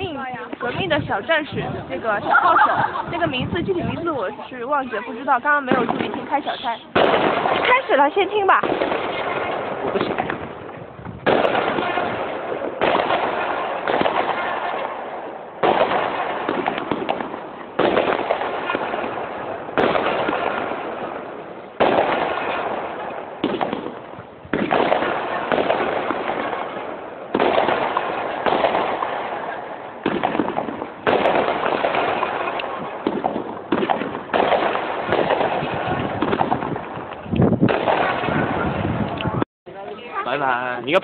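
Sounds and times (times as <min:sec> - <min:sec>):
firecrackers bursting and crackling: 0:00.0 - 0:41.0.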